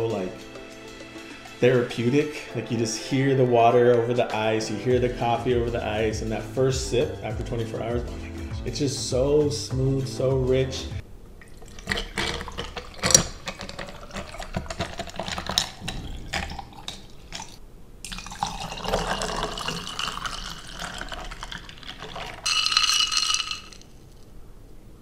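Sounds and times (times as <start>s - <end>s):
coffee pouring over ice: 11.4s - 24.2s
water pouring onto ice: 11.4s - 24.2s
ice crackling and clinking: 11.5s - 24.2s.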